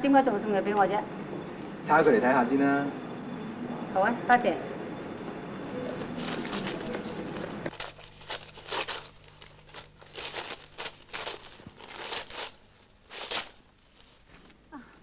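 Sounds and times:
wrapping paper rustling: 0:05.8 - 0:14.8.

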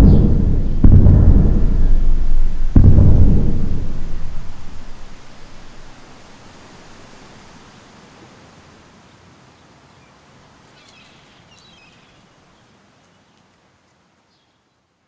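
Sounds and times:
thunder: 0:00.0 - 0:06.2
rain: 0:01.9 - 0:15.0
small birds chirping: 0:09.6 - 0:13.6, 0:14.2 - 0:14.9.

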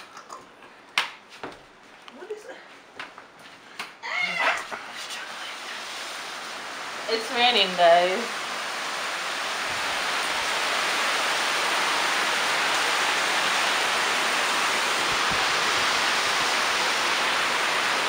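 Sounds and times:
heavy rain falling: 0:04.2 - 0:18.0.

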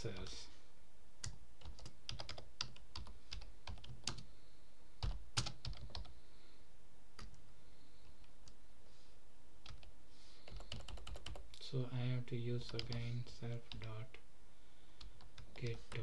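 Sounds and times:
typing on a keyboard: 0:01.2 - 0:04.3, 0:05.0 - 0:06.1, 0:09.6 - 0:11.5, 0:12.7 - 0:13.1.

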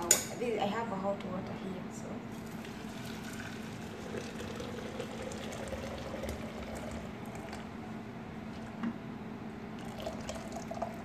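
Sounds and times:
water pouring into metal pot: 0:02.4 - 0:07.5, 0:09.8 - 0:11.0.

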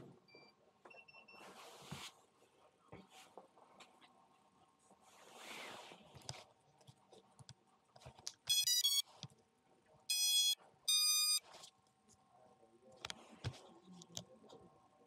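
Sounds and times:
electronic beeps from drone motors: 0:08.5 - 0:09.0, 0:10.1 - 0:11.4.

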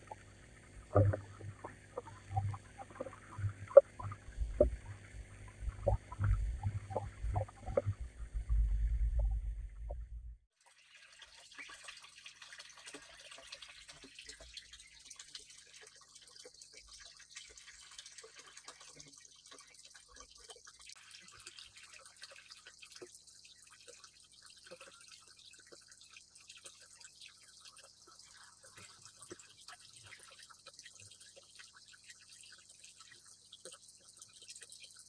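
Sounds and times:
water dripping into a pond: 0:00.0 - 0:35.0
low rumble: 0:00.8 - 0:10.4.

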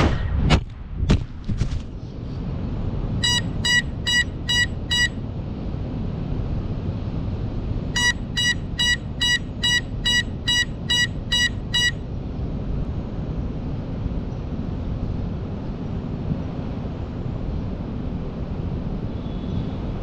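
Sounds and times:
low outdoor rumble: 0:00.0 - 0:20.0
short electronic beeps: 0:03.2 - 0:05.1, 0:08.0 - 0:12.0.

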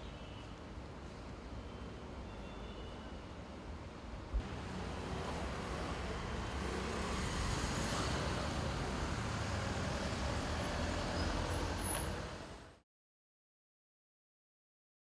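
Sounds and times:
road traffic hum: 0:03.3 - 0:12.8.

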